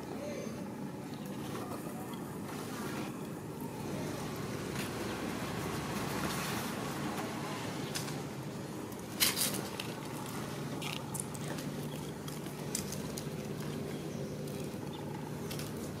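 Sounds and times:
crackling rustles: 4.7s - 16.0s.

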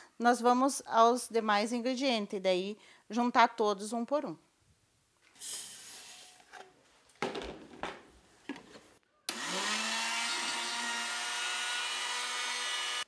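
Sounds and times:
knocks and rustles: 6.4s - 9.0s
electric blender running: 9.3s - 13.0s.

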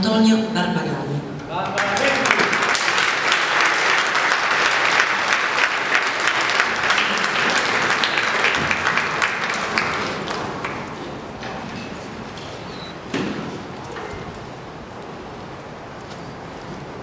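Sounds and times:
audience applauding: 1.5s - 11.4s.

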